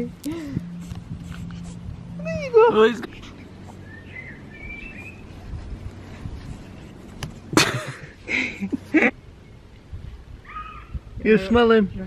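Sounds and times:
puppy sniffing and snuffling: 0.3 - 7.5.

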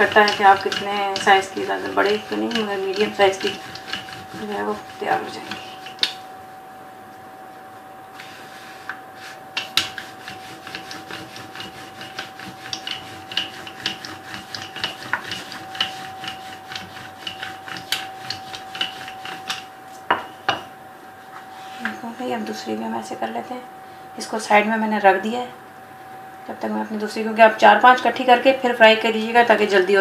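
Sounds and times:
rolling pin rubbing on board: 0.0 - 6.2, 8.2 - 19.7
faint steady hum: 0.0 - 30.0.

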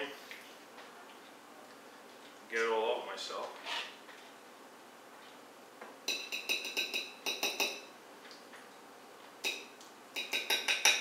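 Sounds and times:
metal spoon clinking on a plate: 6.1 - 7.9, 9.4 - 11.0.

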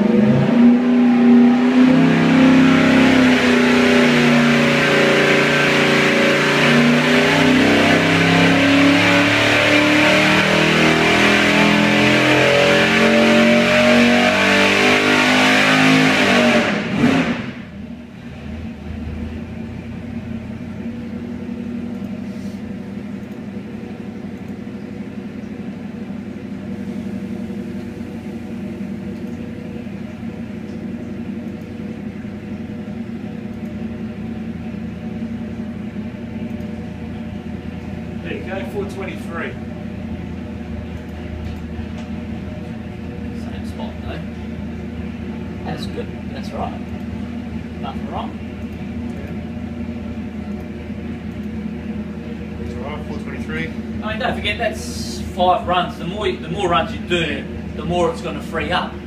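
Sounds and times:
engine revving under load: 0.0 - 23.7, 24.7 - 59.0
engine idling: 16.8 - 59.0.

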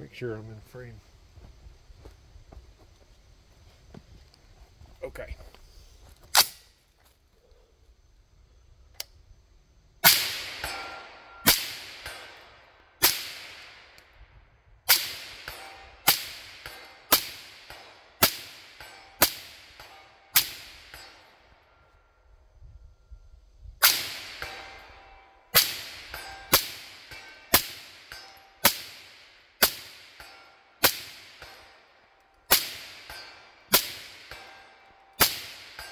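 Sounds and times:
suppressed rifle shots with echo: 10.0 - 14.0, 23.8 - 31.8, 32.5 - 35.9.

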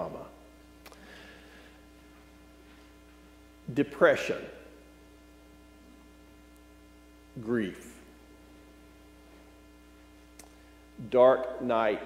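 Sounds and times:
man speaking: 0.0 - 0.3, 3.7 - 4.6, 7.4 - 8.0, 11.0 - 12.0
faint mains hum: 0.0 - 12.0.

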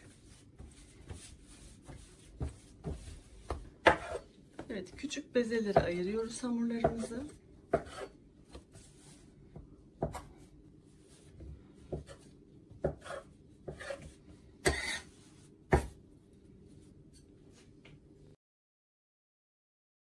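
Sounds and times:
dough rubbing and handling: 0.0 - 18.2.

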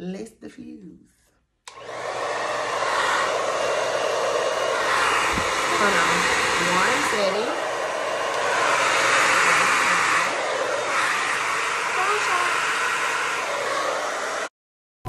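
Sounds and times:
hair dryer blowing: 1.7 - 14.5.

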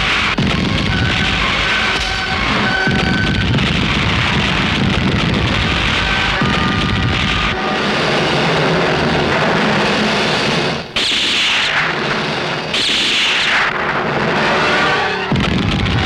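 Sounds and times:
ricochet whines: 10.8 - 16.0.

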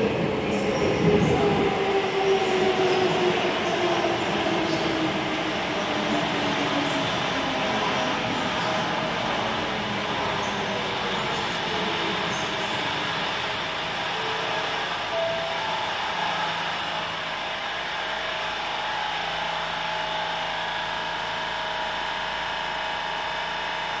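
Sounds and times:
subway train motor whine: 0.0 - 24.0.

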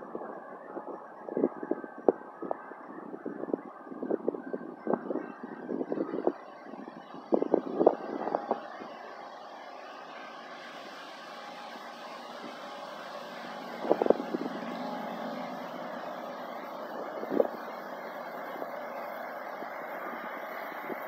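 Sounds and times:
distant freight train rumbling: 10.5 - 21.0.

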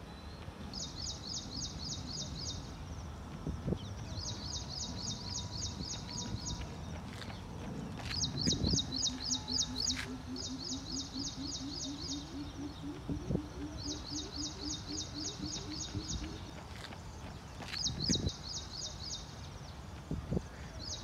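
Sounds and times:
low hooting notes: 7.8 - 16.7
rapid high bird chirps: 8.0 - 16.8.

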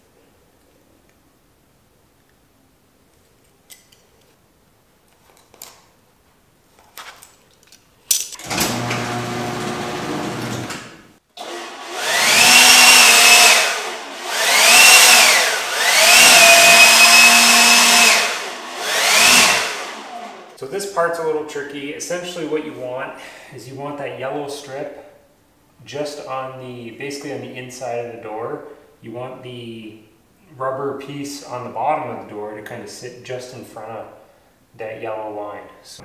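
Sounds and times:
leaf blower whining: 8.4 - 20.6.

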